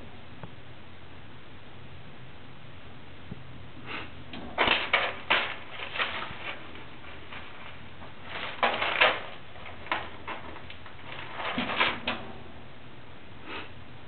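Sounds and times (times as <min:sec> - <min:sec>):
rabbit rustling in hay: 0:04.4 - 0:12.3.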